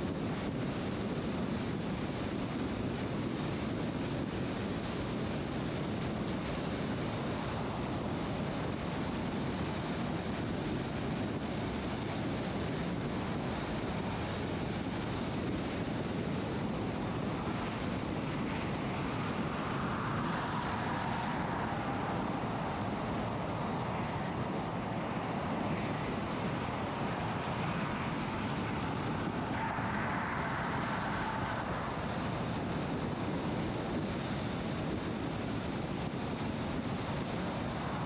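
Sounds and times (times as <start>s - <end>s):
car tyre and wind noise: 0.0s - 38.0s.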